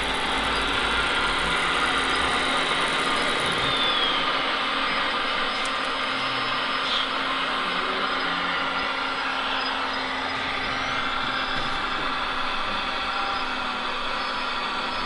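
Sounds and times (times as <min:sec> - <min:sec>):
model excavator hydraulic whirring: 0:00.0 - 0:15.0.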